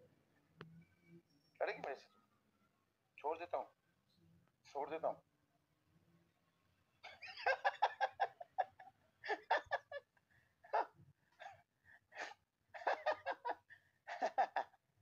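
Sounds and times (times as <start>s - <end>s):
person laughing: 7.1s - 10.1s, 12.2s - 14.8s.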